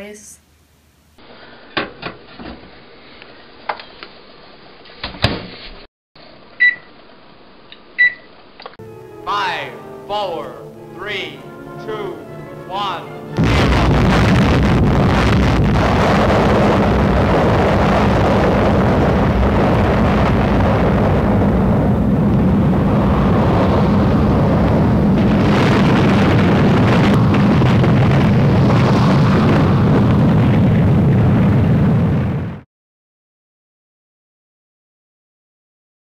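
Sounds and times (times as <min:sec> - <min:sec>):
explosion rumble: 0:13.2 - 0:32.6.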